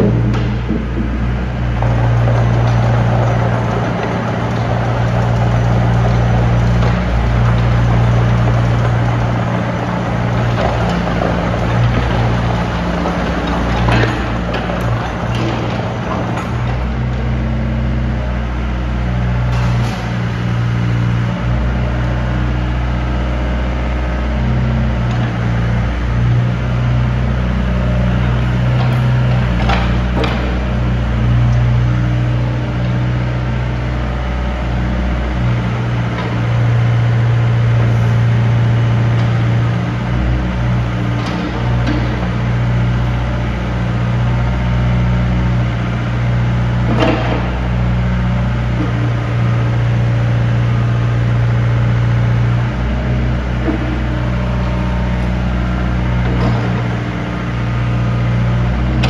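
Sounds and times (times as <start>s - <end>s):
sharp knocks: 0.0s - 17.1s
excavator diesel engine: 0.0s - 59.0s.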